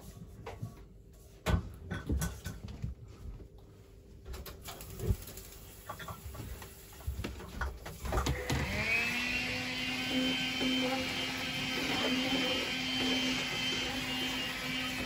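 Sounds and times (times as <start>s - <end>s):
vacuum cleaner motor whine: 8.0s - 15.0s.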